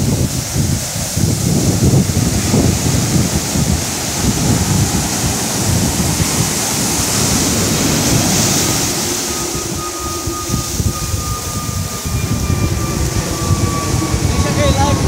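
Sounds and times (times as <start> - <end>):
surf breaking on beach: 0.0 - 12.0
wind rumbling on microphone: 0.0 - 15.0.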